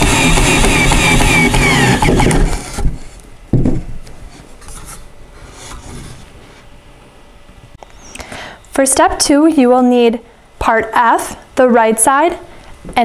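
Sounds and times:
cordless drill driving screw: 0.0 - 2.8
thump: 2.8 - 3.9.

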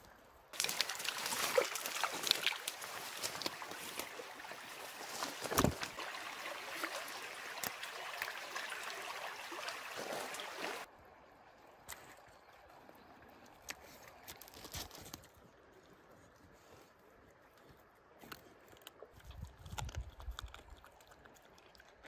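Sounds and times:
water trickling and sloshing: 0.5 - 14.4.

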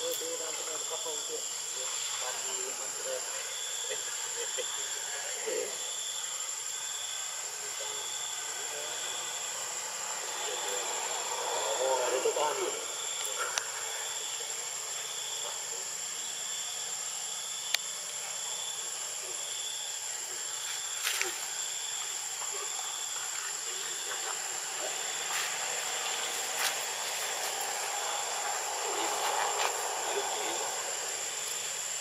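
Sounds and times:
insects shrilling: 0.0 - 32.0
low pulsing insect trill: 0.0 - 32.0.

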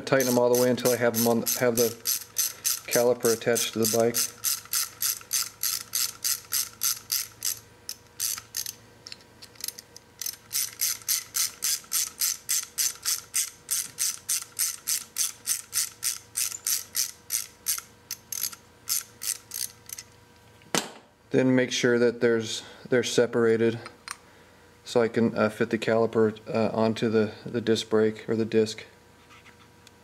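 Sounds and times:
ratchet wrench clicking: 0.1 - 20.1.

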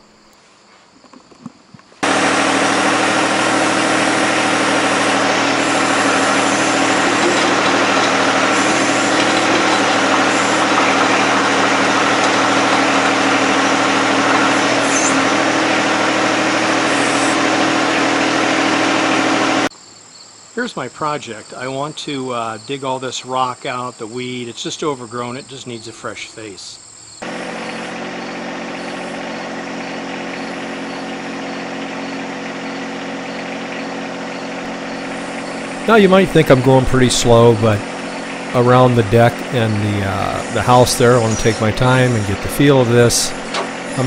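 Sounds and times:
diesel tractor engine running: 2.0 - 19.7, 27.2 - 44.0.

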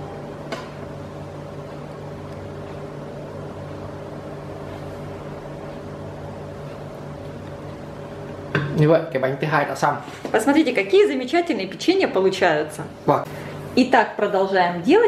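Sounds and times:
machine-like room drone: 0.0 - 10.4.

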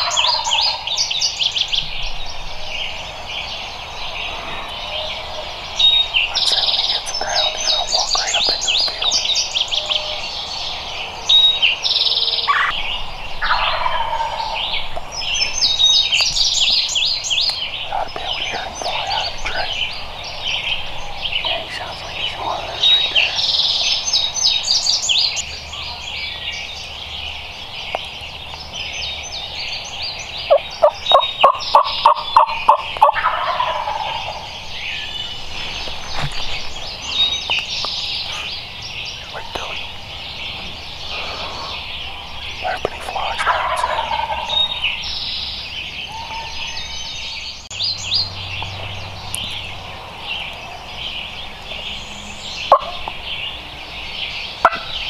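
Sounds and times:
turkey gobbling: 0.0 - 0.9, 12.5 - 12.8, 13.4 - 14.6, 30.5 - 34.5, 43.4 - 44.8, 52.7 - 53.1, 54.6 - 54.9
birdsong: 0.0 - 55.0.

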